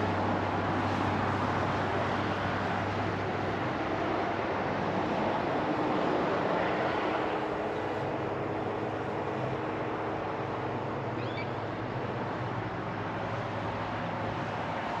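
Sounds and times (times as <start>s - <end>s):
distant road traffic: 0.0s - 15.0s
bird chirp: 11.2s - 11.6s.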